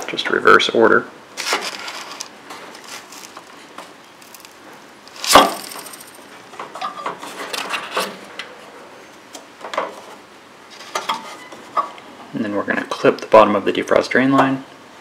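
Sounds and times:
rubbing and scraping: 1.4 - 8.2, 10.0 - 11.5.

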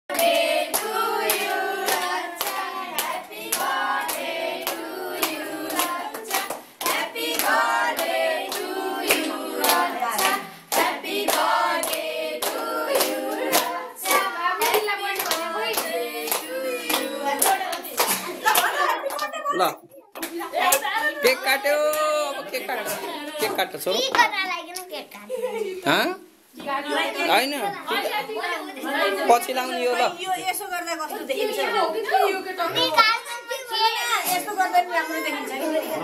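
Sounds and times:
group singing: 0.1 - 23.6, 26.6 - 30.0, 31.0 - 32.9.

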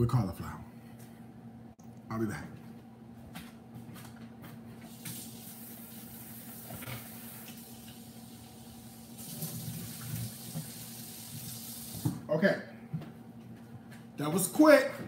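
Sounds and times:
tap water running into sink: 4.9 - 12.2.

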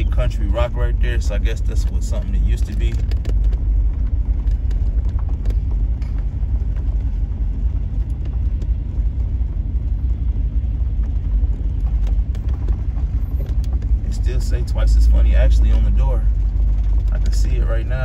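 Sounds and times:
car engine and tyres rumbling: 0.0 - 18.0.

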